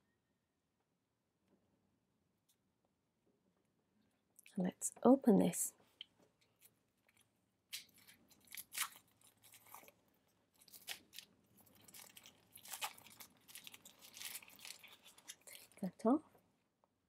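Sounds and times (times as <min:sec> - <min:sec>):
plastic wrapping crinkling: 0:06.4 - 0:16.2.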